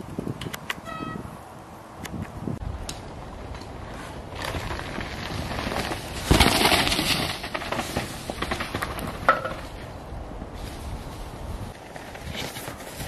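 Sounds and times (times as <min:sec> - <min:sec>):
bike tyres crunching on dirt: 0:02.7 - 0:13.0.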